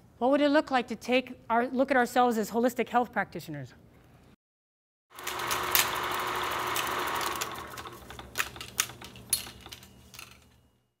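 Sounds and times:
film projector hiss and clatter: 5.2s - 9.8s.

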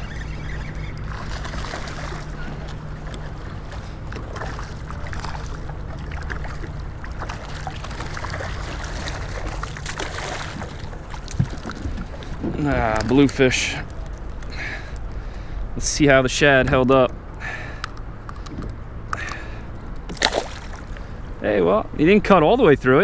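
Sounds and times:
water splashing against kayak hull: 0.1s - 13.4s, 20.1s - 21.1s
fish thrashing at surface: 3.6s - 12.6s, 20.1s - 20.9s.

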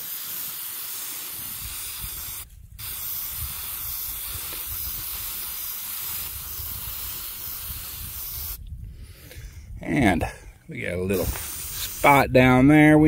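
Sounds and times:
spray paint can hissing: 0.0s - 8.6s, 11.1s - 12.2s.

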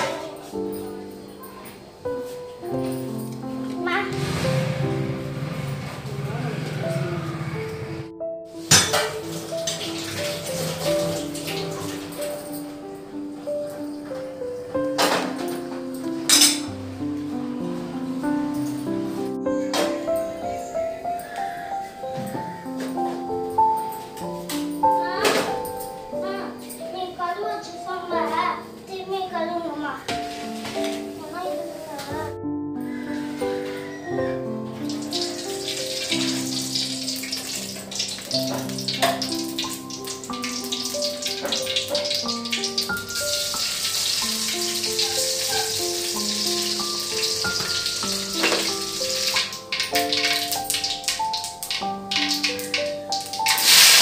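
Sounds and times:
instrumental music: 0.0s - 54.0s
seeds sizzling in hot oil: 8.6s - 11.9s, 34.8s - 54.0s
metal cooking pot clattering: 8.7s - 11.8s, 16.3s - 16.7s, 35.0s - 54.0s.

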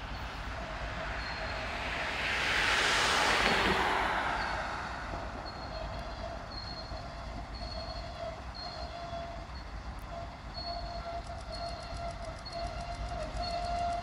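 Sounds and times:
loud rush of noise: 0.0s - 6.6s
diesel locomotive running: 0.0s - 14.0s.

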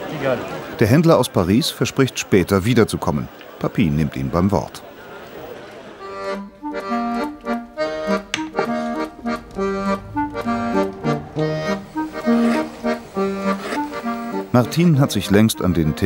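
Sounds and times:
lively accordion music: 6.0s - 16.0s.

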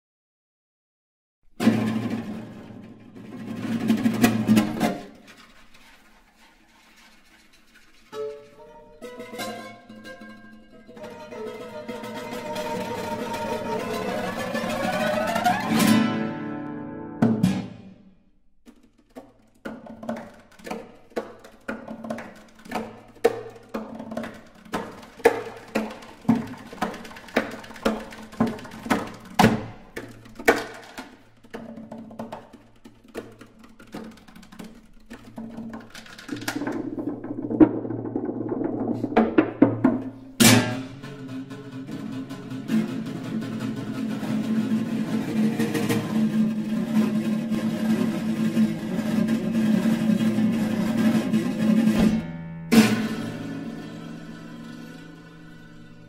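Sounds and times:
guitars scraping: 1.6s - 18.0s, 33.6s - 56.0s
knocking on guitar bodies: 17.2s - 18.0s, 18.7s - 53.6s.

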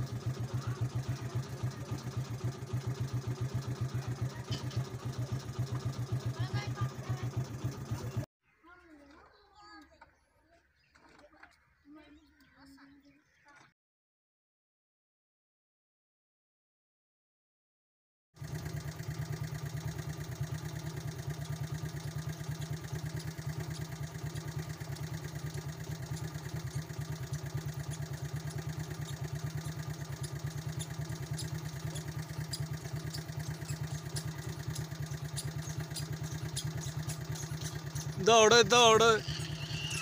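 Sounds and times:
engine thumping: 0.0s - 8.3s, 18.4s - 40.0s.

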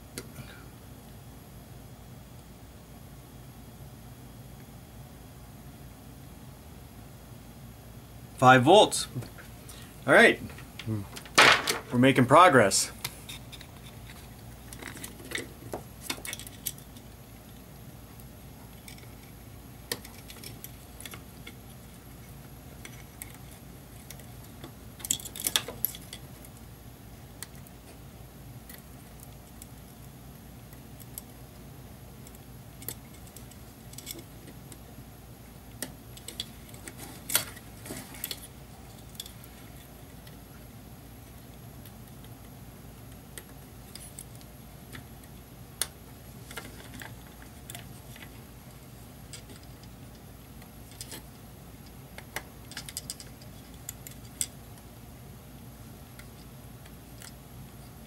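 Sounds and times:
steady low hum: 0.0s - 58.0s
small clicks and rattles: 13.0s - 17.6s, 18.2s - 26.7s, 32.2s - 34.9s, 35.7s - 40.5s, 41.2s - 54.9s.

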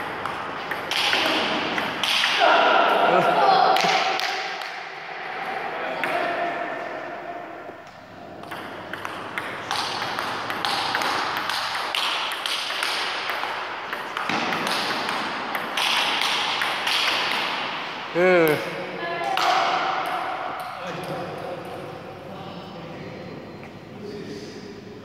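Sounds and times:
table tennis ball tapping: 0.0s - 2.2s, 8.4s - 17.5s.

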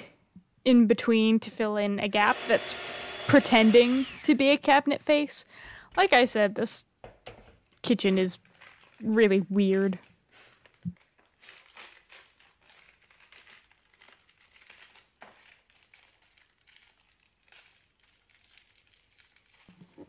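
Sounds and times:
plastic bag crinkling: 8.0s - 20.0s.

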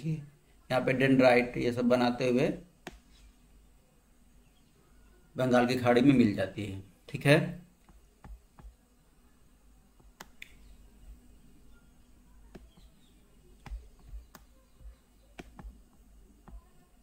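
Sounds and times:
computer mouse clicking: 13.6s - 15.8s.

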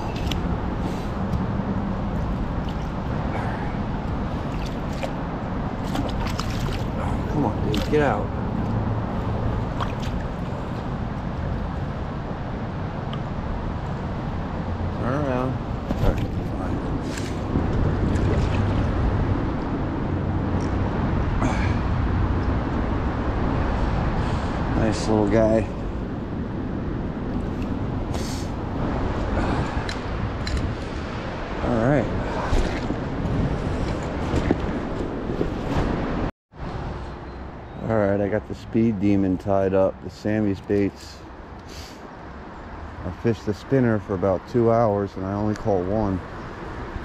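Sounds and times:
stream water rushing: 0.0s - 22.6s.

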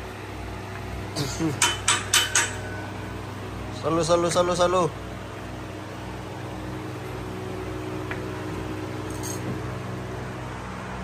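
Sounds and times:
electric fan hum and hiss: 0.0s - 11.0s.

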